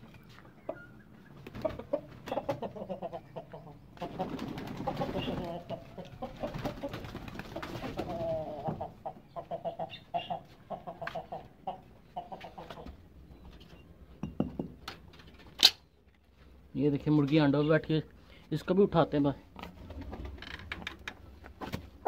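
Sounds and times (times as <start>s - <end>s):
chickens clucking: 0.0s - 14.1s
pigeons cooing: 0.7s - 13.0s.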